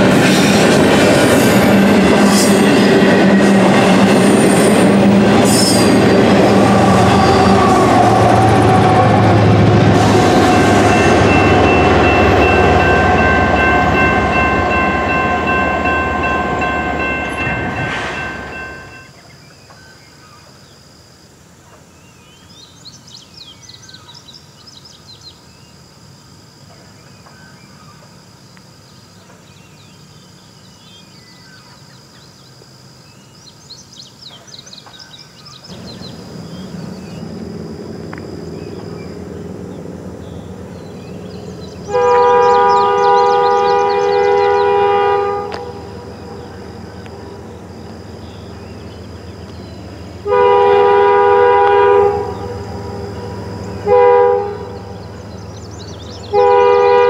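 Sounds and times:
rumble of approaching train: 0.0s - 20.3s, 21.4s - 57.0s
locomotive horn: 3.4s - 19.1s, 41.4s - 47.5s, 50.2s - 55.2s, 56.2s - 57.0s.

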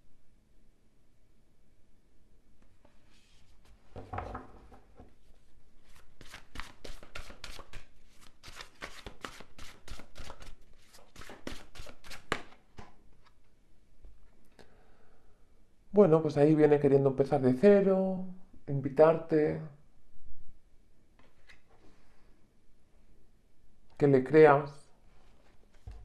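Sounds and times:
cards being shuffled: 5.8s - 13.4s, 21.2s - 21.9s.

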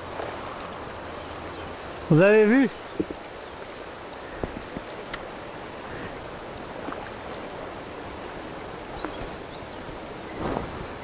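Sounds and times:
river current rushing: 0.0s - 11.0s
faint ticks: 4.4s - 5.3s.

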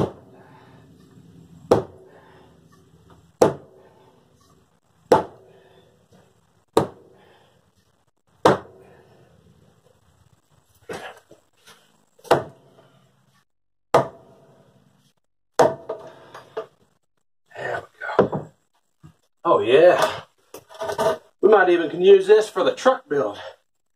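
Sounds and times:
hammer striking wooden framing: 0.0s - 0.2s, 1.6s - 2.1s, 3.3s - 3.8s, 5.1s - 5.5s, 6.7s - 7.1s, 8.4s - 8.8s, 12.2s - 12.6s, 13.9s - 14.4s, 15.6s - 16.1s.

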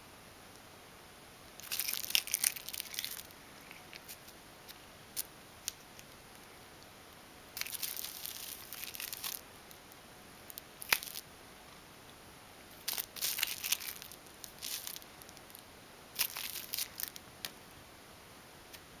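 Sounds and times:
plastic straw crinkling: 1.6s - 6.1s, 7.6s - 9.9s, 10.5s - 11.2s, 12.7s - 15.6s, 16.2s - 17.2s.

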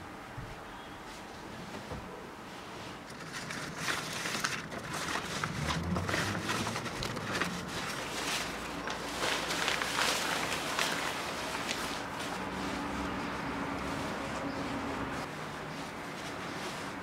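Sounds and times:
plant leaves rustling: 2.5s - 17.0s.

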